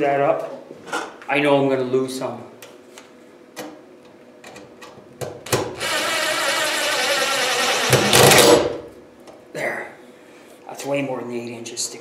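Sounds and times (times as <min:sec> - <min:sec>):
cordless drill driving a screw: 0:05.8 - 0:08.6.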